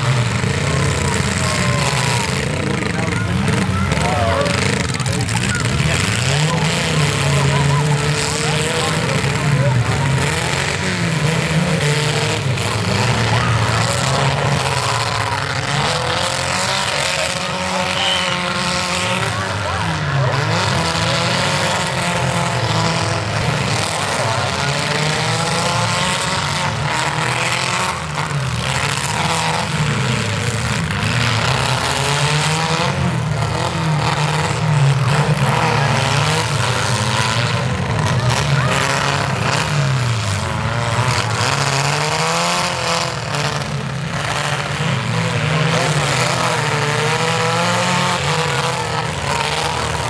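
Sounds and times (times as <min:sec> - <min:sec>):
car engines revving: 0:00.0 - 0:50.0.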